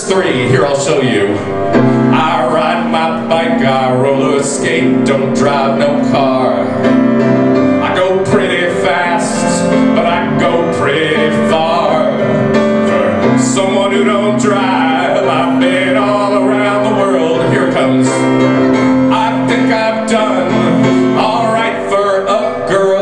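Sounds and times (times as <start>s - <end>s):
man singing: 0.0s - 23.0s
piano chords: 0.0s - 23.0s.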